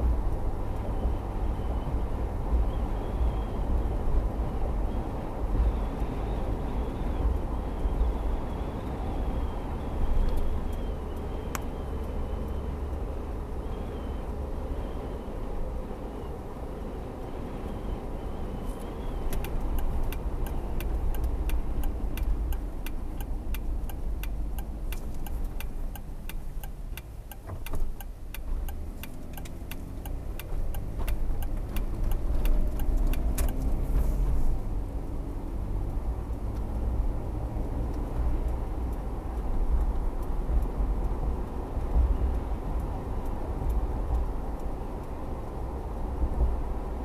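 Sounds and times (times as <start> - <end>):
car road and engine rumble: 0.0 - 47.0
turn signal clicking: 7.0 - 15.0, 17.6 - 46.9.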